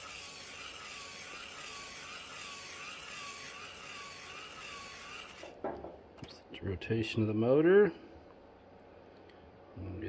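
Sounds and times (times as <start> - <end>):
small gear motor whining: 0.0 - 5.6.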